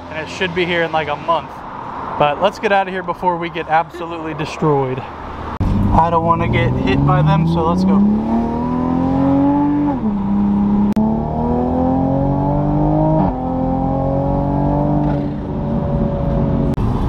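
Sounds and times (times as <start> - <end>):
car engine accelerating hard: 5.3 - 17.0.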